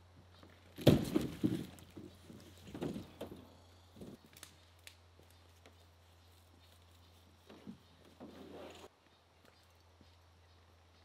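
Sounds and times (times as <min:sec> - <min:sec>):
canoe thumping on ground: 0:00.7 - 0:04.2
canoe knocking and scraping: 0:00.8 - 0:04.2.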